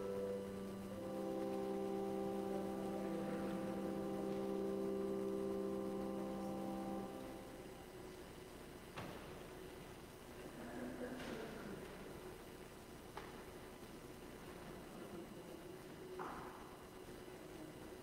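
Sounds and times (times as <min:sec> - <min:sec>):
organ sustained chord: 0:00.0 - 0:08.9.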